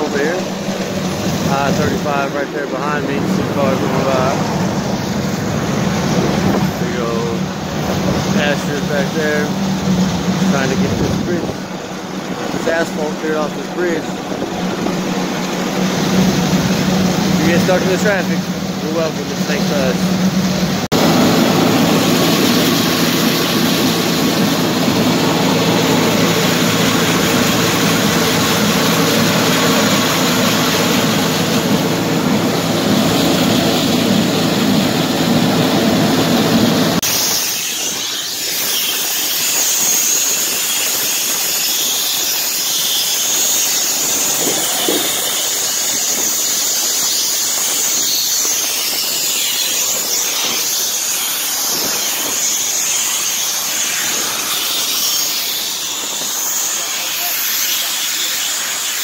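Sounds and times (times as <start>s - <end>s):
construction machinery engine noise: 0.0s - 59.0s
high-pitched hiss: 37.0s - 59.0s.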